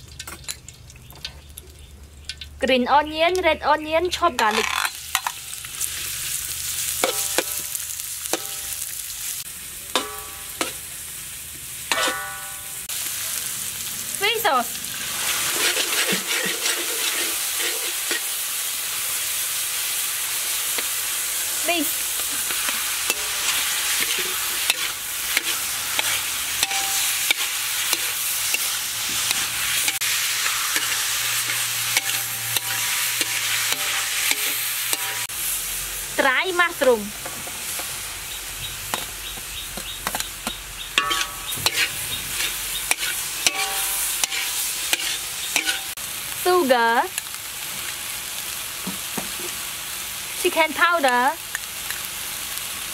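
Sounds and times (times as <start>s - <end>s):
vegetables sizzling in hot oil: 0.0s - 52.9s
metal spoon scraping pan: 4.4s - 6.0s, 11.9s - 12.6s, 15.2s - 18.4s, 22.1s - 35.3s, 41.0s - 46.0s.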